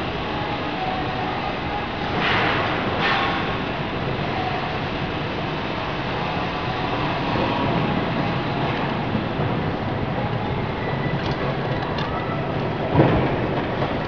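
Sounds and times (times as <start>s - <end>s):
machinery rumbling: 0.0s - 14.0s.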